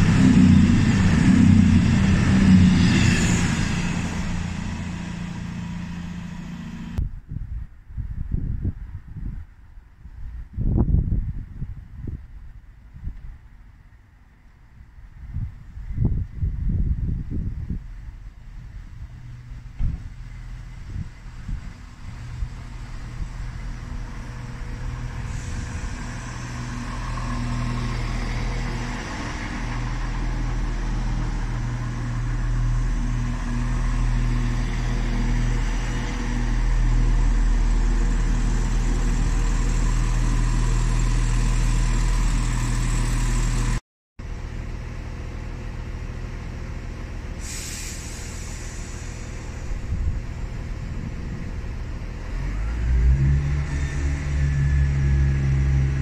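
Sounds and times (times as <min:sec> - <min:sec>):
diesel train engine running: 0:00.0 - 0:07.0, 0:17.6 - 0:56.0
air hiss: 0:47.4 - 0:49.6.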